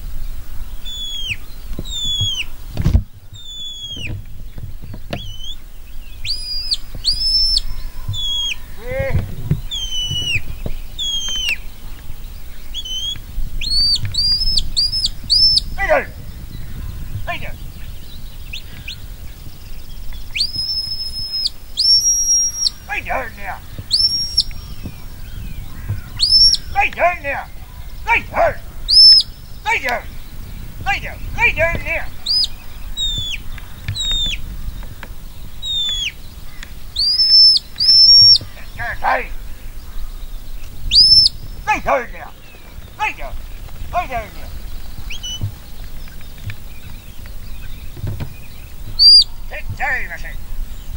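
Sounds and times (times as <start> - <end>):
shepherd's whistle commands: 0.9 - 2.5, 3.4 - 4.2, 5.1 - 5.6, 6.3 - 11.6, 12.8 - 16.1, 20.3 - 24.6, 26.2 - 30.1, 30.9 - 33.4, 35.6 - 36.2, 37.0 - 39.3, 40.9 - 42.1, 49.0 - 50.3.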